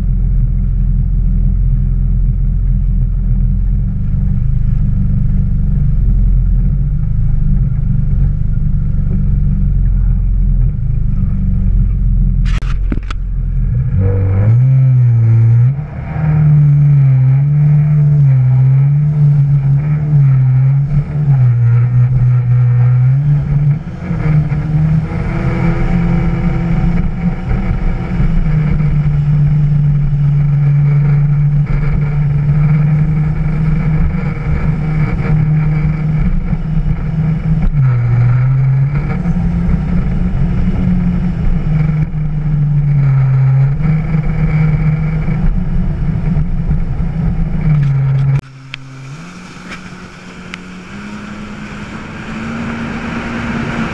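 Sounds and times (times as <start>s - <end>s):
jet ski engine running: 0.0s - 53.9s
water rushing: 48.4s - 53.9s.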